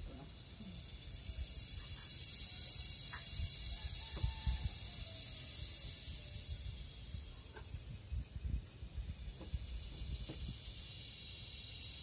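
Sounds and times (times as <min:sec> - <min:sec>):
cicada buzzing: 0:00.0 - 0:12.0.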